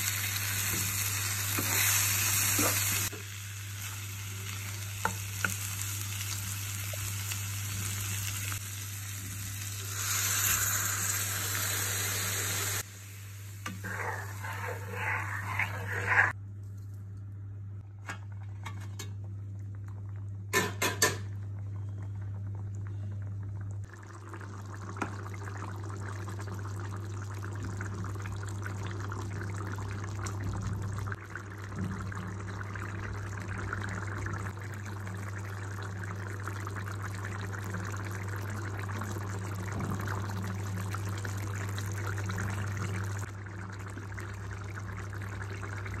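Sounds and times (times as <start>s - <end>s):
curry bubbling in a pan: 13.7s - 16.4s, 21.2s - 46.0s.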